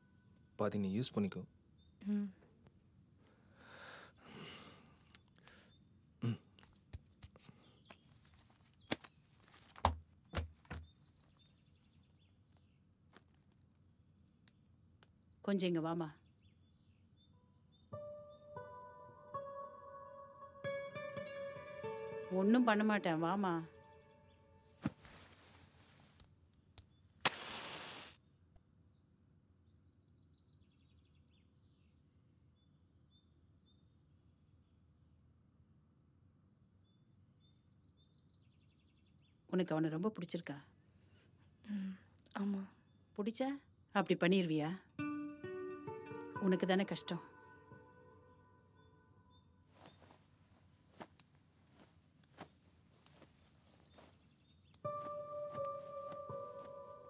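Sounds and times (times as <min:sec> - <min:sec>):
faint birds chirping: 0:00.0 - 0:57.0
match striking and flaring: 0:27.2 - 0:28.2.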